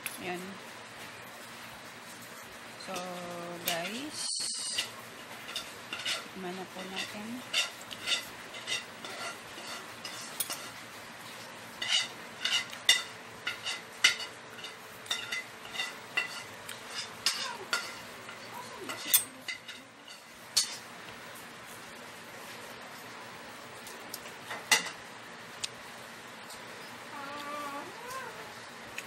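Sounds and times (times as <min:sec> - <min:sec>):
cutlery clinking on a plate: 0:11.8 - 0:20.8.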